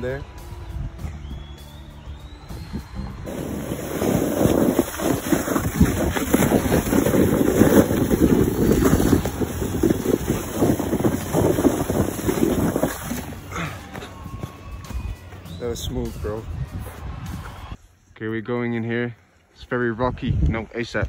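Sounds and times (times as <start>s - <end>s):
wind buffeting microphone: 2.4s - 15.2s
sled scraping over snow: 3.3s - 14.3s.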